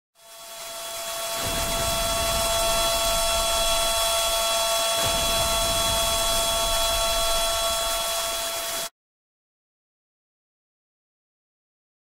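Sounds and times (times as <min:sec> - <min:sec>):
warning siren steady tone: 0:00.2 - 0:08.9.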